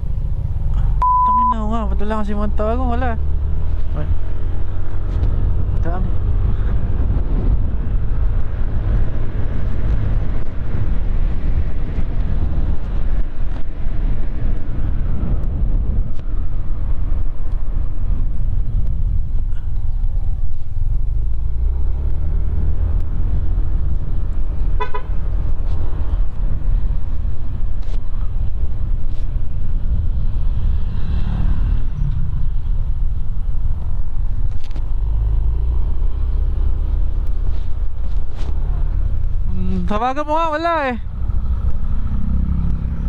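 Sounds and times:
horn beeps: 1.0s - 1.8s
wind rushing on microphone: 2.4s - 43.0s.

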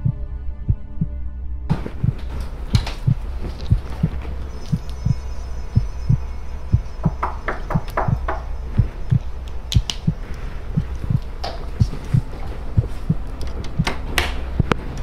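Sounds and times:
heartbeat thumps: 0.0s - 15.0s
low drone: 0.0s - 15.0s
sharp clicks: 9.1s - 12.2s.

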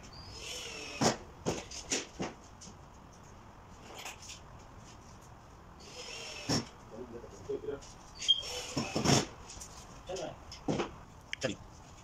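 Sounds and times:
faint squeaky whine: 5.8s - 9.2s.

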